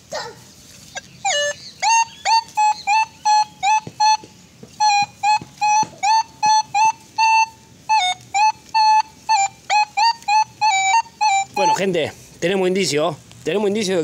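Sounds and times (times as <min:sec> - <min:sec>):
metal detector beeps: 0:01.2 - 0:11.9.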